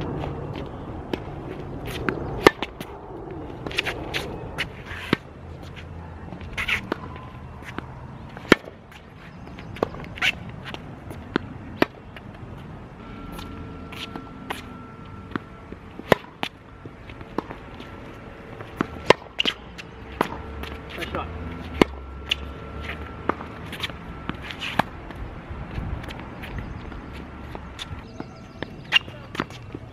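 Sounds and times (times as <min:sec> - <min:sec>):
racquet hitting tennis ball: 0:01.9 - 0:02.9, 0:06.5 - 0:08.8, 0:13.3 - 0:25.0
footsteps on court: 0:13.3 - 0:29.9.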